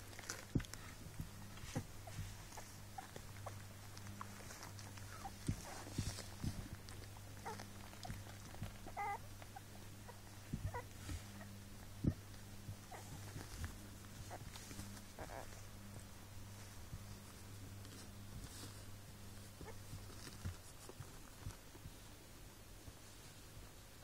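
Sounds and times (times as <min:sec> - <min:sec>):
puppies rustling on bedding: 0:00.0 - 0:24.0
steady low hum: 0:00.0 - 0:24.0
puppy whimpering: 0:04.2 - 0:06.2, 0:07.0 - 0:13.5, 0:14.2 - 0:15.6.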